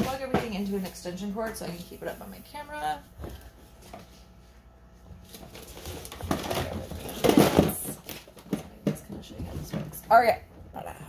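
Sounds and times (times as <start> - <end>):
rustling and clattering objects: 0.0 - 10.9.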